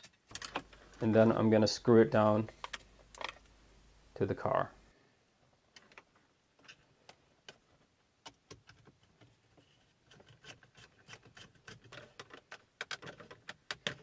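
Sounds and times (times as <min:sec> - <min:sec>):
small clicks and scrapes: 0:05.7 - 0:14.0.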